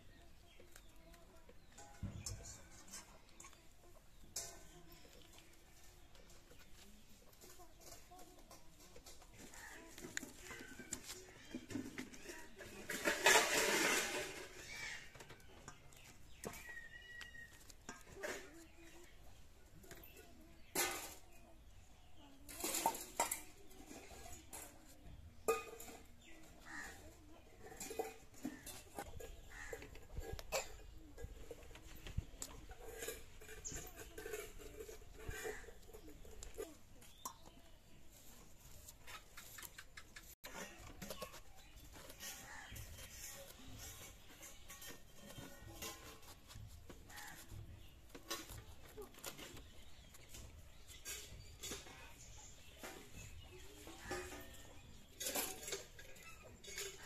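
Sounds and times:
bird calls: 13.8 - 19.0.

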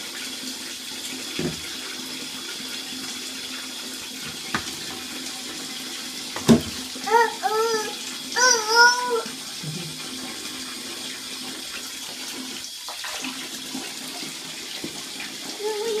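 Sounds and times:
bath tap running into tub: 0.0 - 16.0
toddler calling: 7.0 - 9.3, 15.6 - 16.0.

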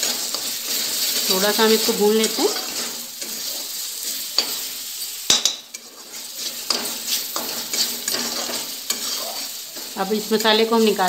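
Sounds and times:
light sizzle: 0.0 - 11.0
metal spoon scraping a pan: 0.0 - 11.0.

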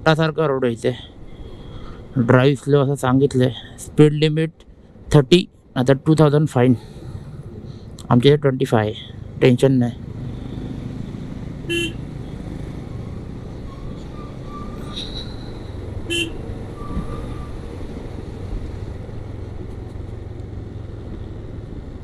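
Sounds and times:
wind and road noise: 0.0 - 22.0
motorcycle engine rumble: 6.3 - 22.0
vehicle horn toot: 11.7 - 12.0, 16.1 - 17.1.

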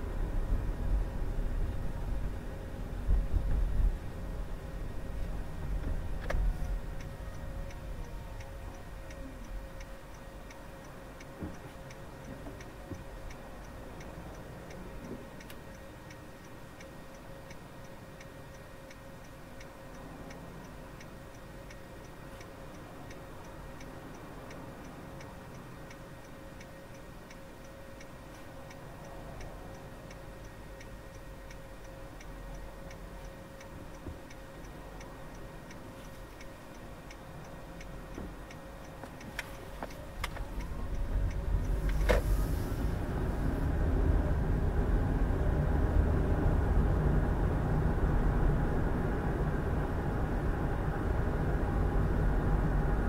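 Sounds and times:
low hum of idling car: 0.0 - 53.0
turn signal ticking: 0.0 - 53.0.

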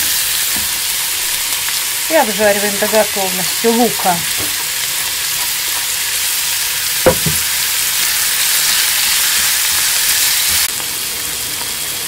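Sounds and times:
food sizzling in a frying pan: 0.0 - 12.0
sharp knock: 7.1 - 7.5.

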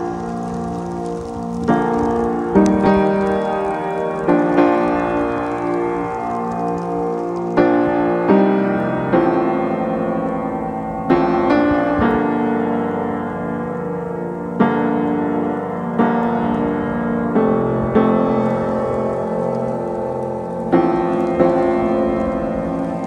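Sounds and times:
slow piano chords: 0.0 - 23.0.

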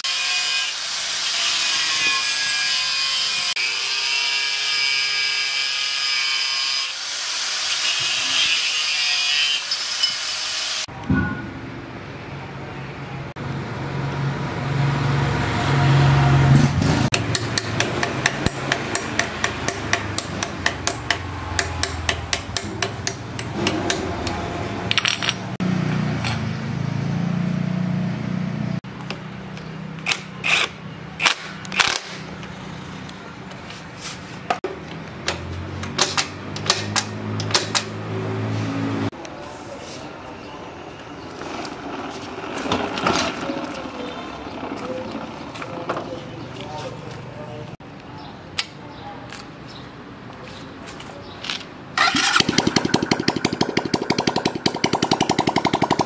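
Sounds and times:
hammer tapping on steel: 17.1 - 24.4.

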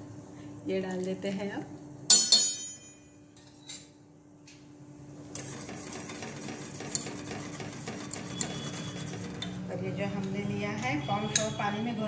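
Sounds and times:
whisk scraping metal pan: 5.4 - 9.6.

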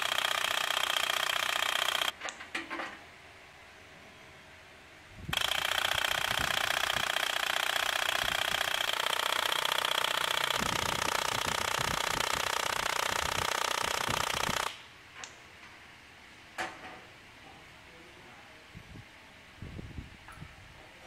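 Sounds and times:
valve lapping tool buzzing rattle: 0.0 - 2.2, 5.3 - 14.8
tool clicks: 0.0 - 2.4, 5.3 - 15.4.

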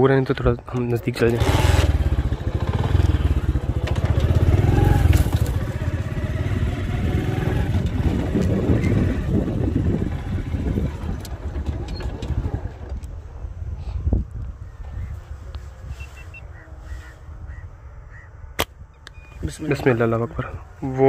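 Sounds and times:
tyres crunching over dirt: 0.2 - 13.0
motorcycle engine running: 1.2 - 13.4.

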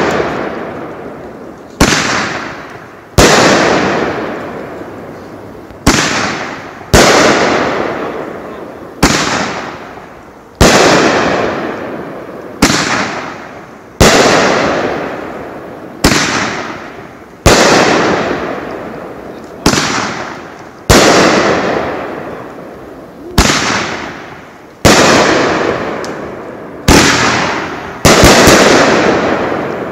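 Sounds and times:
cluster of firework pops: 0.0 - 8.4, 9.0 - 22.6, 23.3 - 29.9
firework shells bursting: 9.0 - 29.9.

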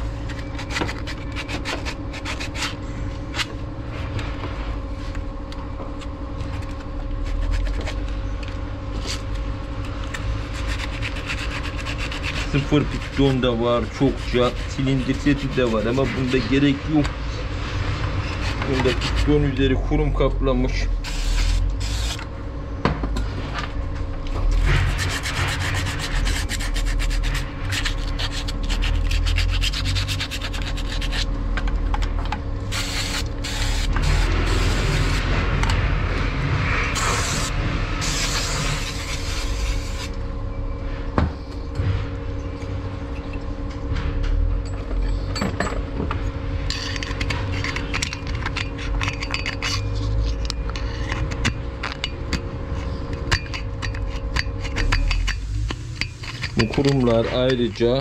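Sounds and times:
scraping carbon off metal: 10.1 - 16.8, 46.6 - 58.0.

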